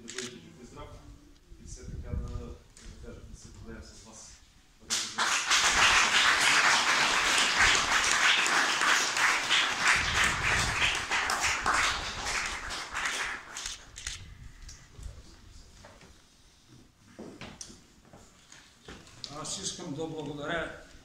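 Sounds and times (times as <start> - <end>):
audience applauding: 4.9 - 13.7.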